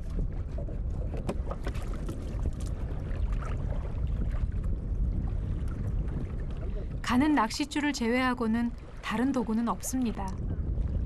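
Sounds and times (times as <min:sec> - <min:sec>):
knocks and clicks in boat: 0:00.0 - 0:07.1
sea water around a boat: 0:00.0 - 0:11.0
wind: 0:00.0 - 0:11.0.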